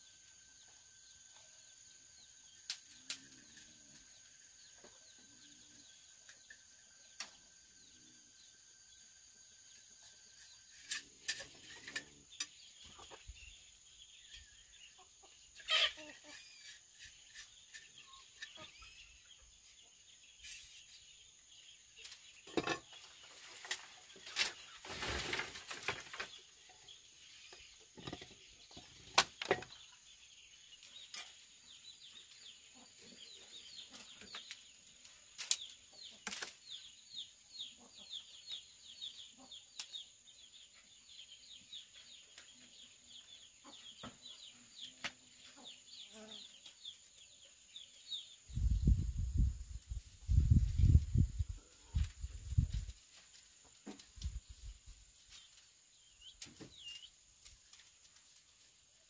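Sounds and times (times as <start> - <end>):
small birds chirping: 0.0 - 59.0
chickens clucking: 9.9 - 21.0, 42.3 - 46.8.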